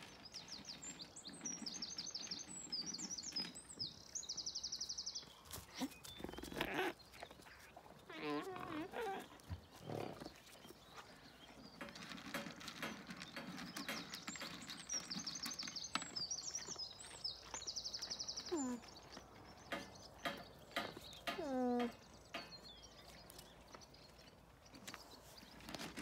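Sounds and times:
alpaca feeding from a bowl: 0:00.0 - 0:26.0
small birds chirping: 0:00.0 - 0:26.0
rustling and crunching: 0:05.3 - 0:26.0.

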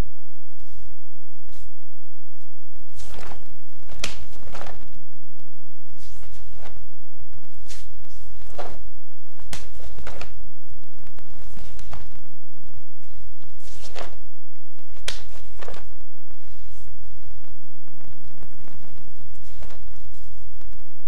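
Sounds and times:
steady low hum: 0:00.0 - 0:21.0
cloth swishes and snaps: 0:02.8 - 0:04.9, 0:05.9 - 0:06.9, 0:07.5 - 0:10.4, 0:11.3 - 0:12.1, 0:13.0 - 0:16.9, 0:19.3 - 0:20.4
bare feet thudding on floor: 0:02.9 - 0:04.8, 0:07.6 - 0:10.4, 0:11.4 - 0:12.1, 0:13.6 - 0:14.2, 0:14.9 - 0:15.9.

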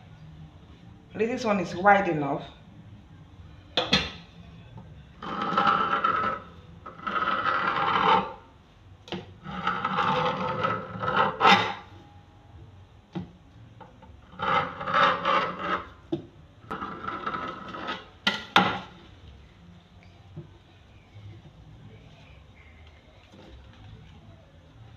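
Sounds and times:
knife scraping on worktop: 0:05.2 - 0:08.4, 0:09.1 - 0:11.9, 0:14.3 - 0:16.0, 0:16.7 - 0:18.9.

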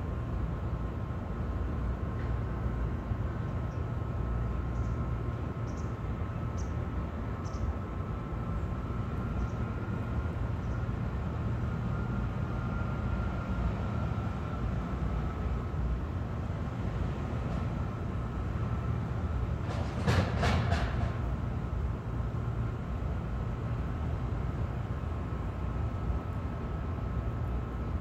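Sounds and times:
mechanical rumble with whine: 0:00.0 - 0:28.0.

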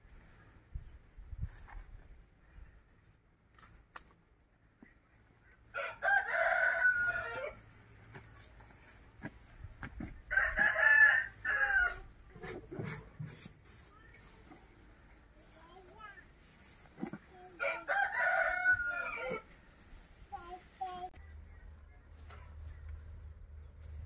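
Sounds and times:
rooster crowing: 0:05.8 - 0:07.6, 0:10.3 - 0:12.0, 0:17.6 - 0:19.4.

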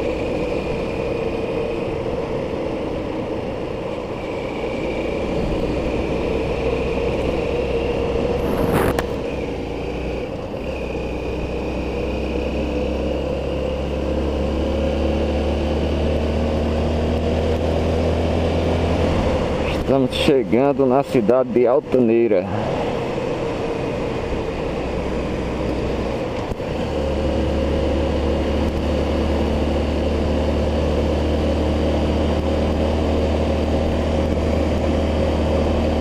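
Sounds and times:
vehicle engine at highway speed: 0:00.0 - 0:36.0
wind and road noise: 0:00.0 - 0:36.0.

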